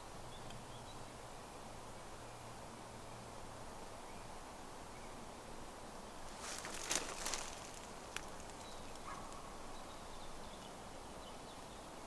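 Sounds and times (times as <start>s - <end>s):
faint steady hiss: 0.0s - 12.0s
leaves and twigs rustling: 6.1s - 9.8s
twig snapping: 6.4s - 9.1s.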